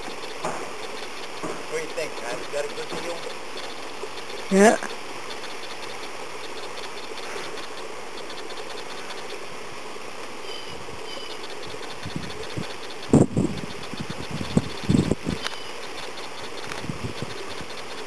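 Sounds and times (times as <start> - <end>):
background hiss and hum: 0.0 - 18.0
faint high chirps: 10.4 - 12.9.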